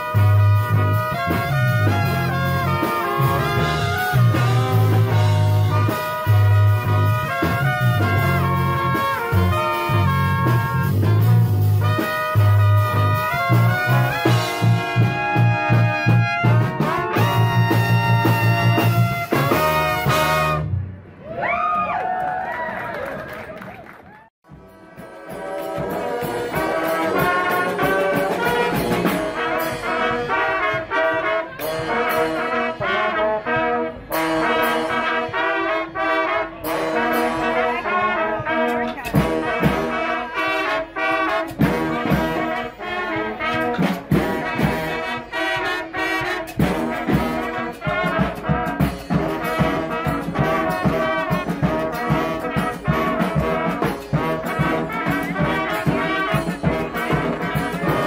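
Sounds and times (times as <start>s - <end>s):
trumpets and trombones: 0.0s - 21.0s, 24.4s - 58.0s
drum hits: 43.6s - 45.1s, 46.4s - 58.0s.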